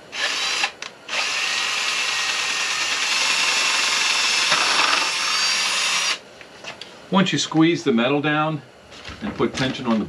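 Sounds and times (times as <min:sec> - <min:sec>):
power drill boring through rubber: 0:00.2 - 0:06.2.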